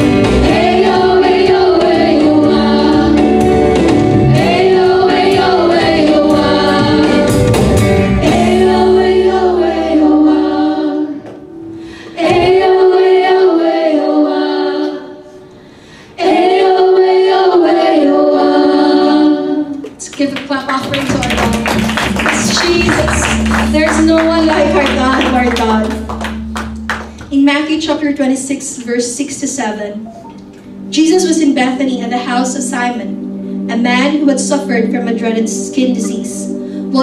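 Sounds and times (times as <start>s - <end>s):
electric and acoustic guitars: 0.0s - 9.0s, 20.7s - 28.2s
group singing: 0.0s - 11.4s, 12.1s - 15.4s, 16.1s - 19.9s.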